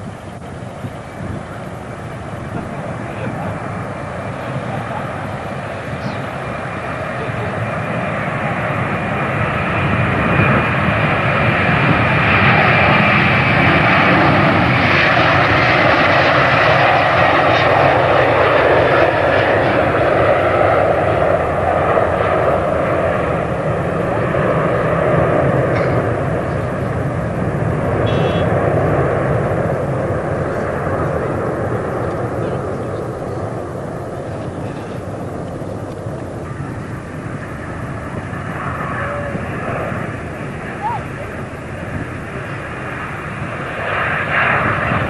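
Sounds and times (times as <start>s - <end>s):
jet engines roaring: 0.0s - 45.0s
thin high whine: 28.0s - 28.5s.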